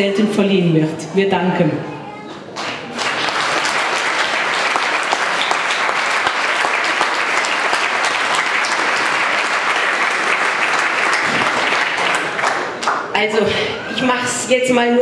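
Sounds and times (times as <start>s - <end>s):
audience applauding: 2.5s - 13.1s.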